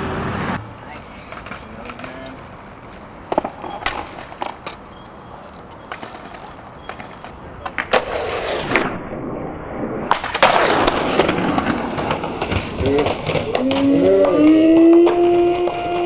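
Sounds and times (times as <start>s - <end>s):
skateboard wheels rolling: 0.0s - 8.8s, 10.1s - 16.0s
skateboard ollie pop and clack: 1.3s - 4.8s, 5.5s - 8.8s, 10.1s - 16.0s
skateboard clicks and taps: 1.3s - 8.2s, 12.0s - 16.0s.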